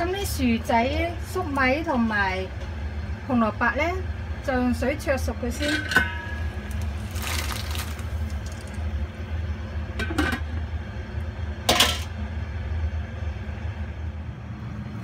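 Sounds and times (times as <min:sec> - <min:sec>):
steady low hum: 0:00.0 - 0:15.0
vegetables splashing into water: 0:06.9 - 0:08.8.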